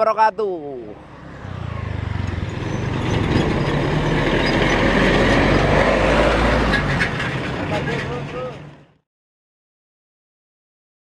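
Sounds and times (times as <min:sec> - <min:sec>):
truck engines passing: 0:00.1 - 0:09.0.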